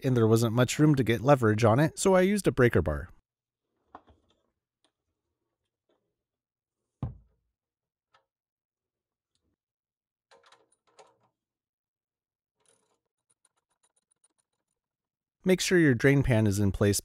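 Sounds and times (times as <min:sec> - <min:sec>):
tools clinking and rattling: 0:12.6 - 0:14.9.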